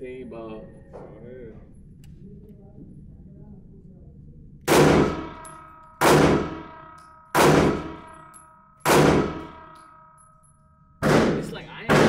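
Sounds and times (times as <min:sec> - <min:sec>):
pistol shots with metallic ring: 0:04.7 - 0:12.0.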